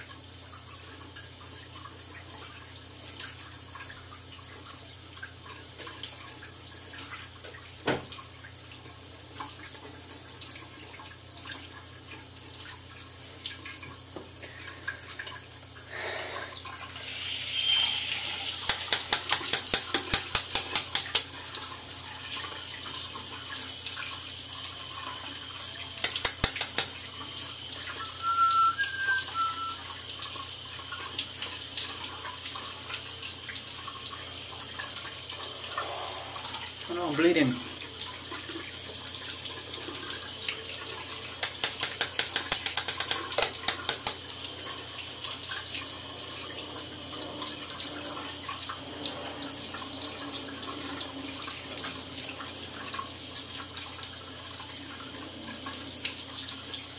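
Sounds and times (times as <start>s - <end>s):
tap running into sink: 7.8s - 8.2s, 16.9s - 21.4s, 25.9s - 27.4s, 41.2s - 44.3s
razor tapping on sink: 18.4s - 21.2s, 26.0s - 27.0s, 41.4s - 44.2s.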